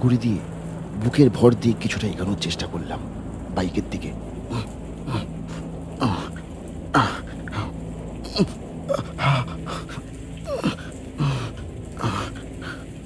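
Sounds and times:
low steady hum: 0.0 - 13.0
man groaning in pain: 4.5 - 12.8.

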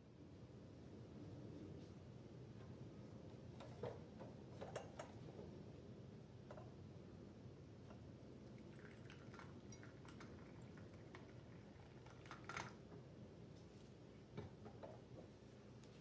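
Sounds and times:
tea pouring into a teacup: 8.0 - 12.8.

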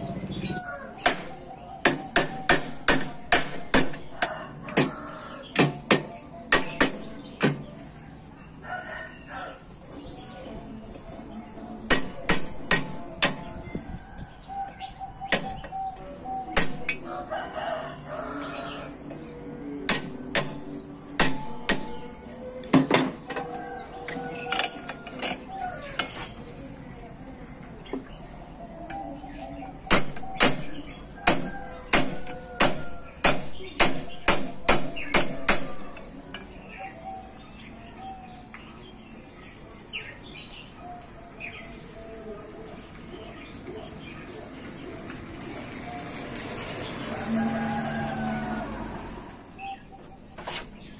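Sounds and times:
hammer striking steel rod: 1.0 - 4.0, 11.9 - 13.6, 16.5 - 17.1, 19.8 - 22.2, 29.9 - 36.0.

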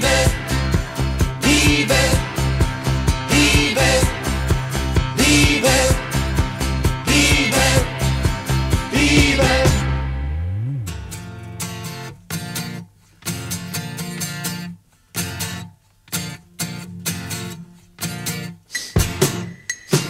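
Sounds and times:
pop-rock band playing: 0.0 - 11.6
guitar strumming chords: 0.0 - 14.7
sliding bass note: 8.3 - 11.6.

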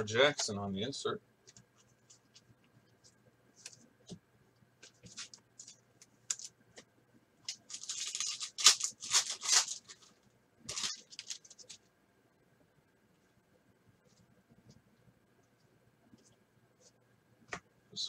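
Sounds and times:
foil wrapper crinkling: 5.0 - 6.5, 7.4 - 11.8.

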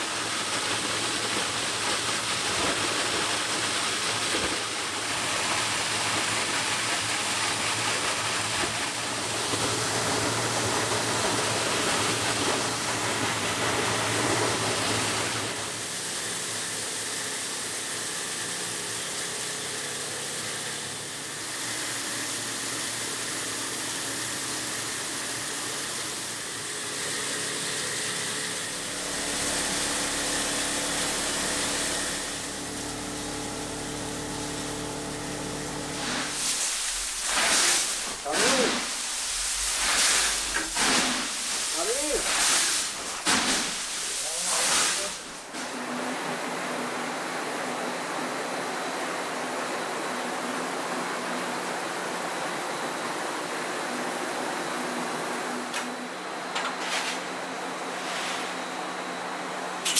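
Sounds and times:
recycling machinery running: 0.0 - 46.1
water rushing: 36.1 - 45.5.

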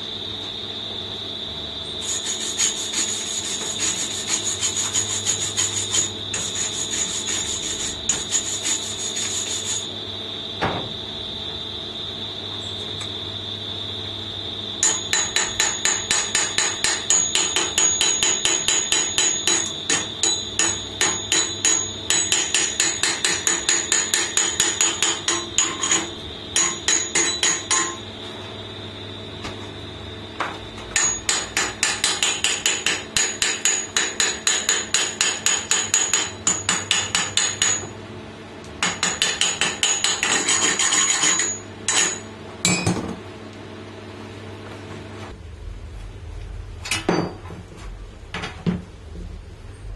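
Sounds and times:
hammer striking steel tube: 14.8 - 28.0, 31.0 - 37.9, 38.8 - 42.9.

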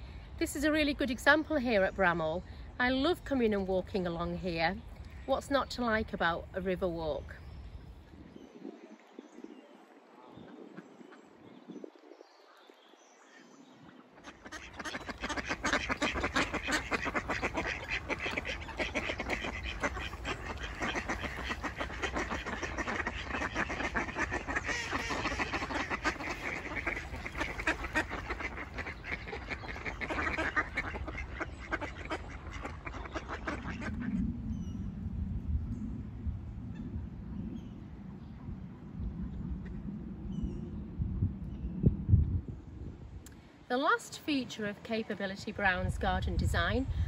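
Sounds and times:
ducks quacking: 13.3 - 34.1.

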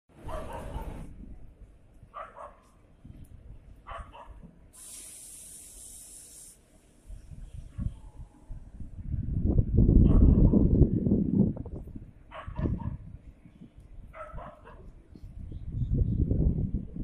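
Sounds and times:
dog barking: 0.2 - 1.1, 2.2 - 2.7, 3.9 - 4.4, 10.0 - 10.4, 12.3 - 13.0, 14.1 - 14.9
steady high hiss: 4.7 - 7.1.

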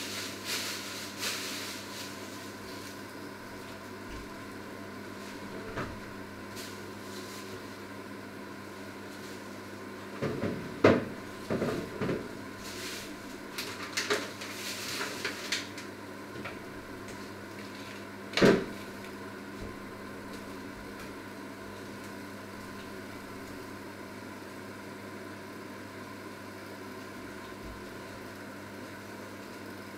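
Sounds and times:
steady low hum: 0.0 - 29.9
cupboard doors and pots knocking: 10.2 - 12.3.

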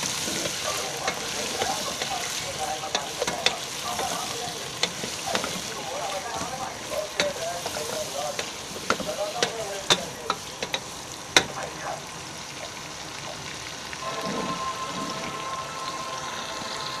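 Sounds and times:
liver sizzling in a pot: 0.0 - 17.0
ladle knocking against pot: 2.9 - 11.6.

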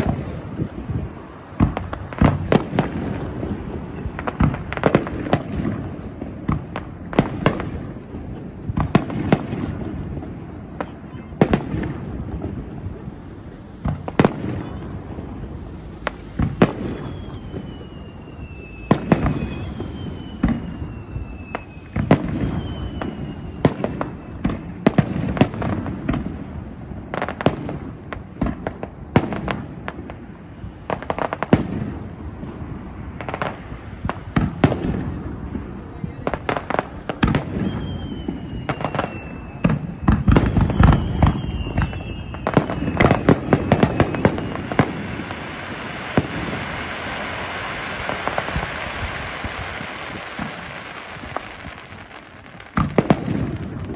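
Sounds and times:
firework shells bursting: 0.0 - 35.2
falling firework whistles: 0.0 - 53.9.

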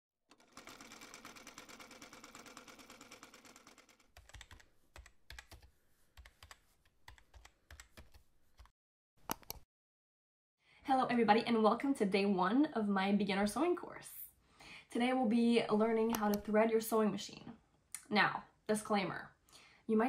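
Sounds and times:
keystroke clicks: 4.2 - 8.7, 9.3 - 9.6.

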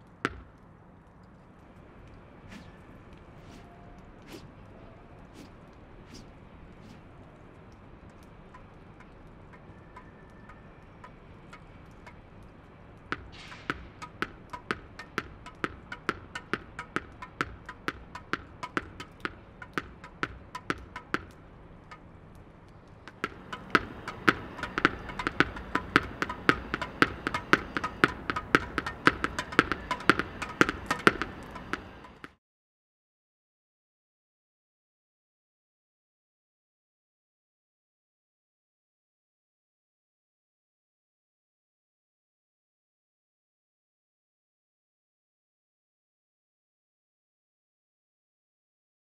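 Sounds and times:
ball tapping on racket: 0.2 - 0.7, 2.5 - 4.5, 5.4 - 7.1, 8.2 - 22.0, 23.1 - 32.4
tennis ball bouncing on stone: 0.2 - 0.7, 8.5 - 22.0, 23.1 - 32.4.

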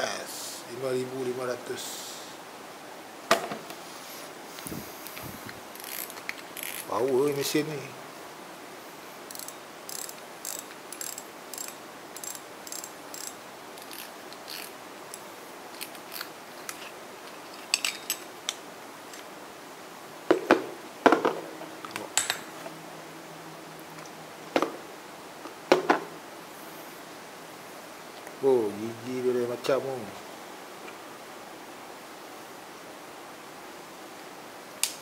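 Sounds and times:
fishing reel ticking: 5.8 - 6.9, 9.3 - 14.7.

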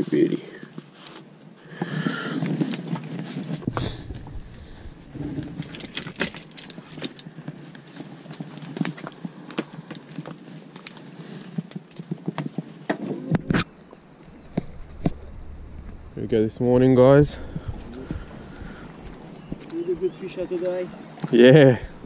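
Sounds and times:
fishing gear rattling: 2.4 - 12.3
loud thump: 3.7 - 5.5.

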